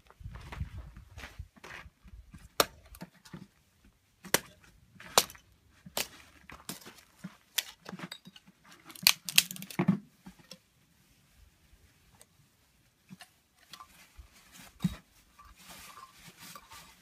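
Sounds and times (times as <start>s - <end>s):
hatchet chopping wood: 2.6s - 3.0s, 4.2s - 5.4s.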